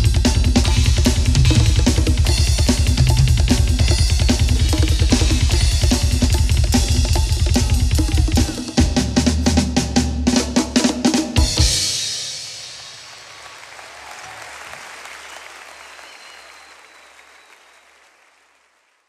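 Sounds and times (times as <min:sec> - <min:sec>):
drum kit playing: 0:00.0 - 0:13.1
applause: 0:12.8 - 0:19.0.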